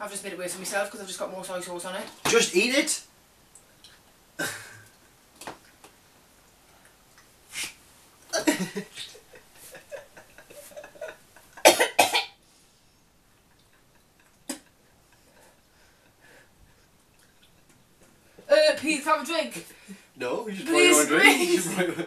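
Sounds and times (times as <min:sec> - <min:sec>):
woman coughing and gagging: 0:08.4 - 0:08.8, 0:10.9 - 0:12.4.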